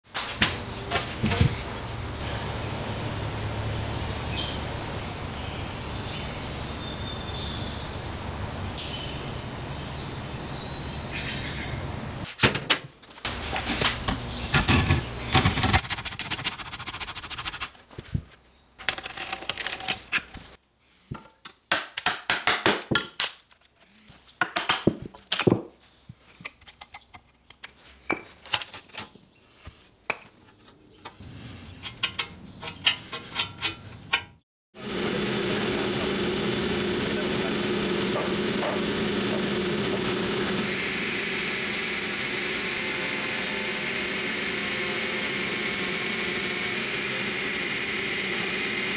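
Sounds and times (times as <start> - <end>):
steady hum: 1.2 - 12.3, 34.8 - 48.9
hacksaw cutting wood: 13.3 - 17.8, 30.6 - 34.3, 38.1 - 48.9.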